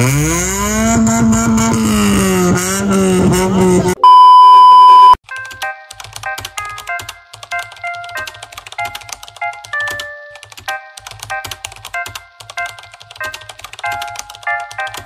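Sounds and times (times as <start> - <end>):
keyboard typing clicks: 5.2 - 15.0.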